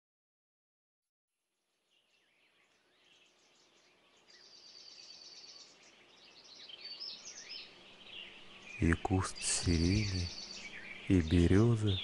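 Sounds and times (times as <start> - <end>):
songbirds singing: 1.7 - 12.0
rapid high bird trill: 4.4 - 12.0.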